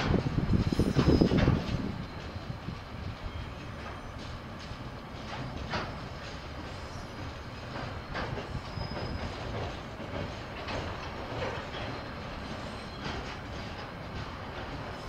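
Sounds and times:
train wagons rumbling: 0.0 - 15.0
wheels clacking over track: 3.7 - 15.0
faint wheel squeal: 6.7 - 7.3, 8.1 - 9.7, 11.6 - 13.3.

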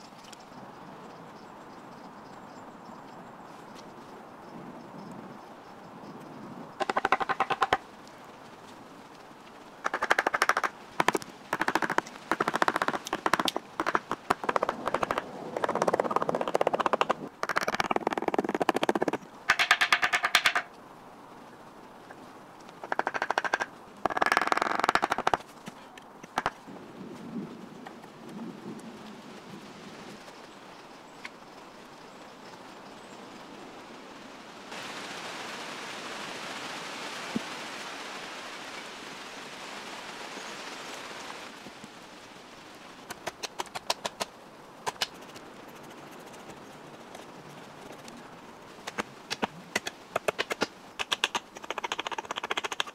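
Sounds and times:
steady soft hiss: 28.0 - 43.3.

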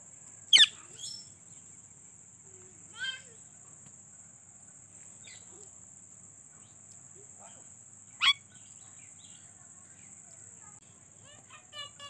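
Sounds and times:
high insect drone: 0.0 - 12.0
soft bird chirps: 0.5 - 5.8, 6.5 - 10.7
parakeet squawk: 0.6 - 0.8, 8.2 - 8.4.

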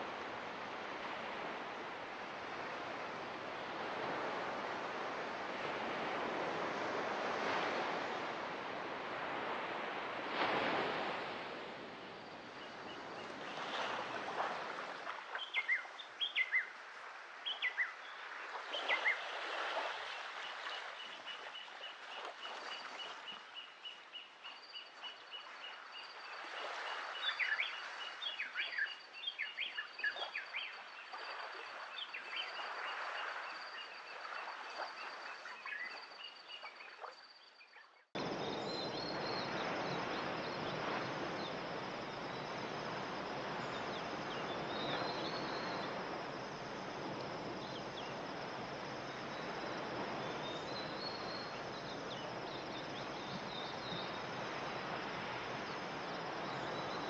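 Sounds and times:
surf washing: 0.0 - 23.4, 38.2 - 57.0
soft waves washing: 0.0 - 37.4, 38.1 - 57.0.

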